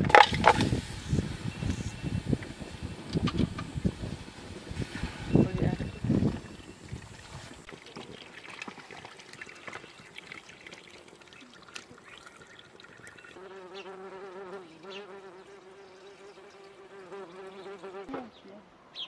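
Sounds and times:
water pouring into a pot: 4.7 - 13.4
flying insect buzzing: 13.4 - 18.2.

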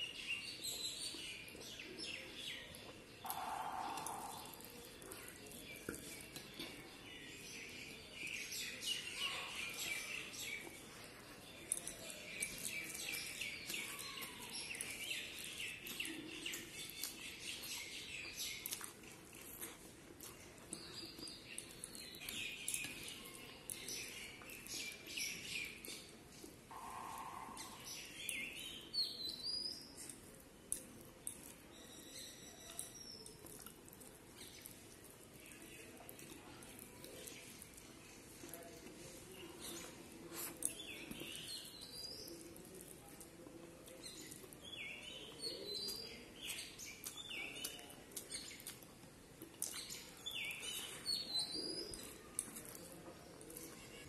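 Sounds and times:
chewing: 1.4 - 7.4, 9.0 - 28.8, 29.8 - 54.0
food squished on steel plate: 3.2 - 6.8.

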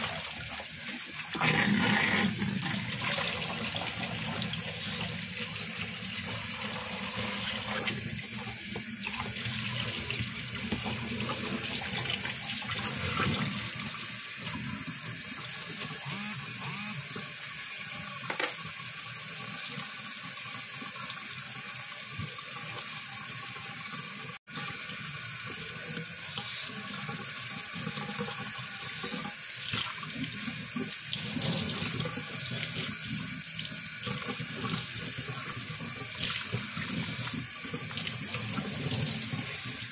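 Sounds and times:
tap running into sink: 18.2 - 18.8.

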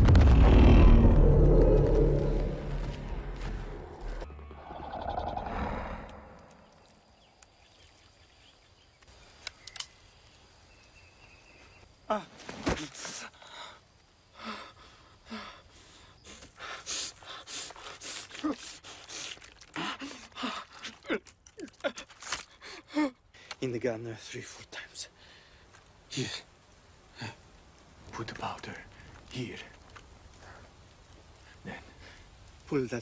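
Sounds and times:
deep rumble: 0.0 - 6.6.

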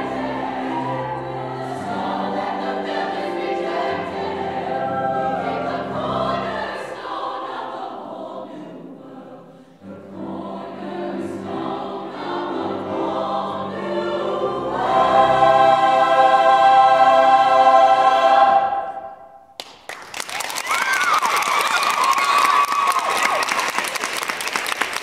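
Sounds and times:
mixed choir singing: 0.0 - 19.4.

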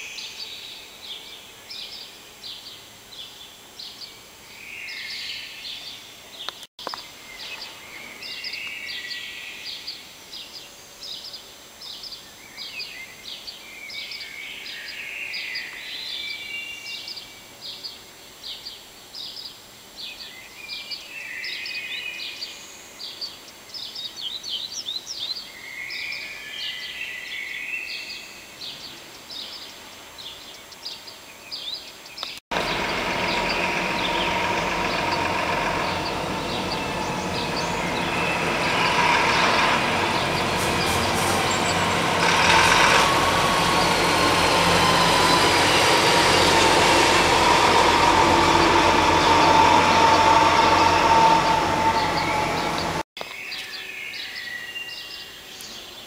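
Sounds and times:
birds chirping: 0.0 - 56.0
birds warbling: 32.6 - 53.0.

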